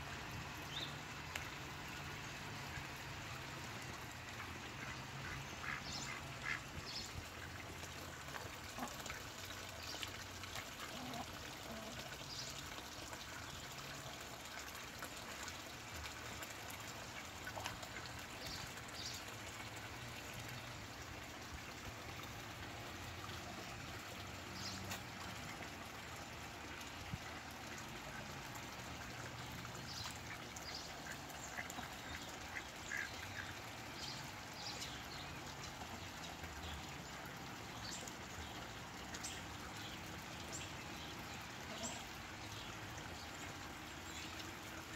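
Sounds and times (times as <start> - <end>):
ducks quacking: 4.7 - 6.8.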